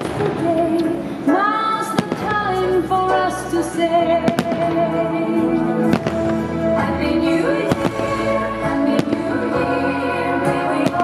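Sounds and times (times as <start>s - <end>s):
festive music: 2.0s - 11.0s
fireworks bangs: 5.9s - 6.4s, 7.6s - 9.4s.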